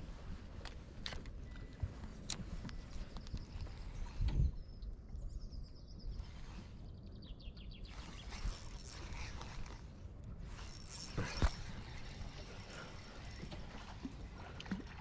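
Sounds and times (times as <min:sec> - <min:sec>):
low steady background rumble: 0:00.0 - 0:15.0.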